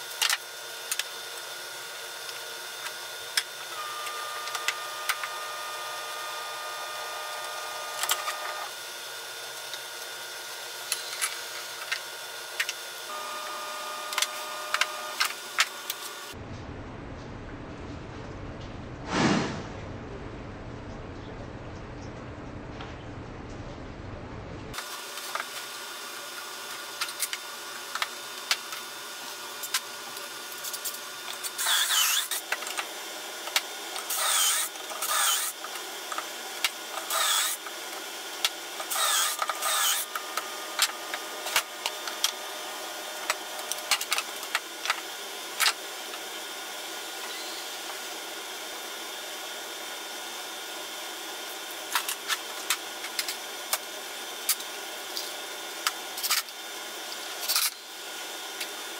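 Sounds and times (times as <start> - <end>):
cordless drill boring wood: 2.2 - 16.4, 31.4 - 32.8, 33.5 - 45.0.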